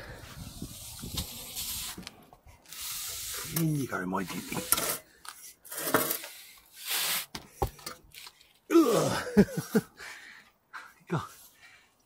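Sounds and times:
metal pipe scraping: 2.7 - 6.6
man grunting with effort: 8.7 - 9.5.

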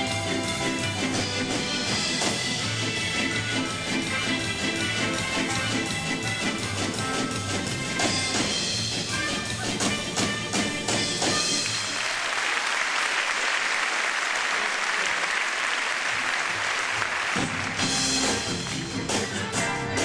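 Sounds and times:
rhythmic backing music: 0.0 - 12.0, 16.9 - 20.0
audience applause: 11.3 - 19.1.

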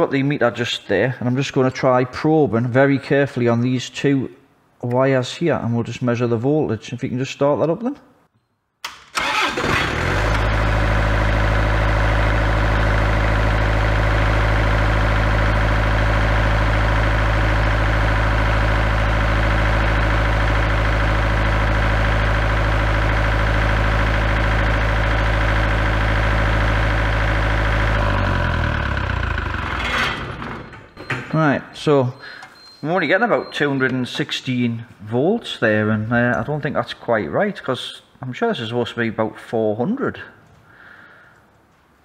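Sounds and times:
generator starter cranking: 8.8 - 31.6
diesel generator humming: 9.2 - 32.7.

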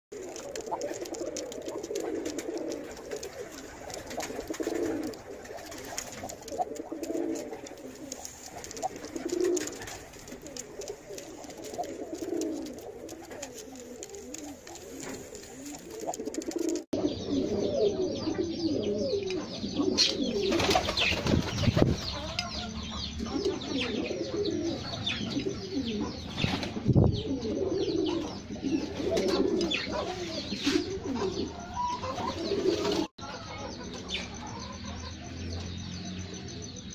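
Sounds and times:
pigeons cooing: 0.1 - 36.4.

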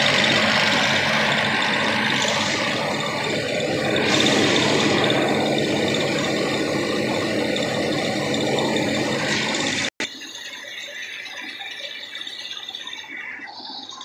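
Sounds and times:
rice mill mechanical clatter: 0.0 - 14.0.

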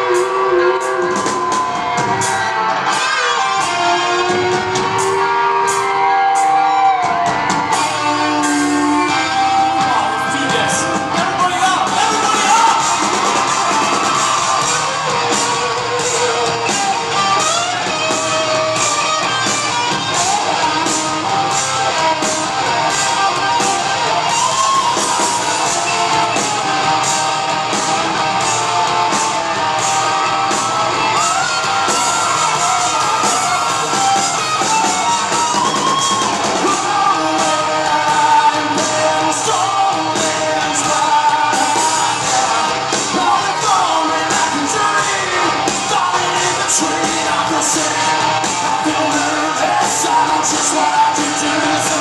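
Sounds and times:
drum kit with cymbal hits: 0.0 - 52.0
electric guitars: 0.0 - 52.0
person singing: 35.0 - 52.0.

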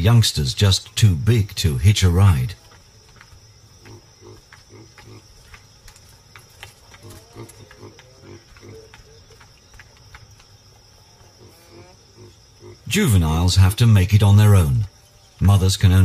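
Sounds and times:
high insect trill: 0.0 - 16.0
baboons grunting: 3.7 - 5.6, 6.9 - 9.6, 11.1 - 13.0.

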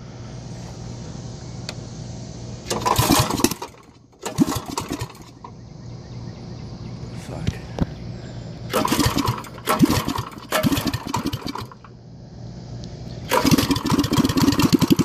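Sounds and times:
small go-kart engine running: 2.7 - 5.4, 8.7 - 11.9, 13.3 - 15.0.

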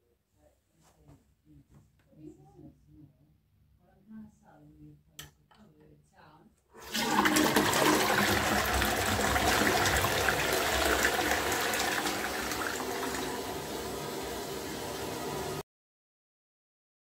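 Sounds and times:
toilet flushing: 6.8 - 15.6.

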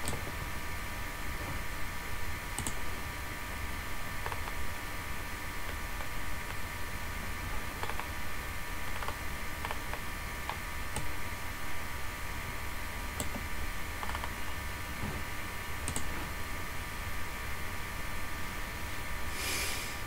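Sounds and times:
faint high electrical whine: 0.0 - 20.0
computer mouse clicks: 2.6 - 2.8, 4.2 - 4.6, 7.5 - 8.1, 8.9 - 11.2, 13.2 - 14.6, 15.8 - 16.1
background hiss: 19.3 - 20.0.

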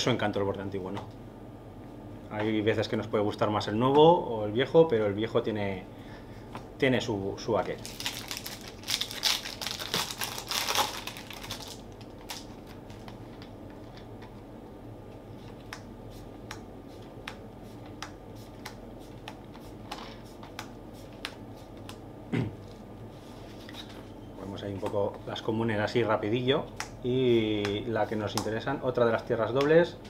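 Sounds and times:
foil pack ripping open: 7.8 - 12.8.

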